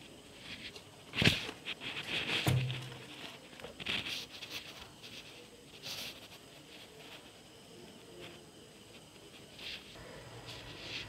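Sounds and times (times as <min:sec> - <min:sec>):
thump: 0:02.4 - 0:03.0.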